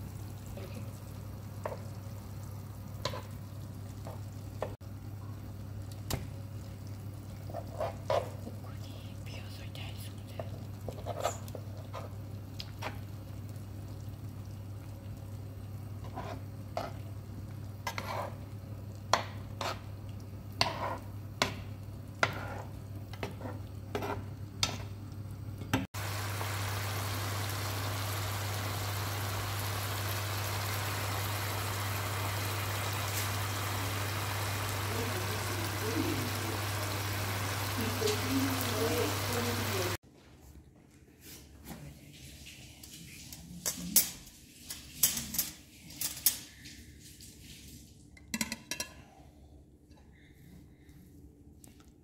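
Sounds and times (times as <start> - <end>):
broth simmering with bubbling hiss: 0.0 - 40.0
spoon scraping nonstick pan: 17.8 - 18.4.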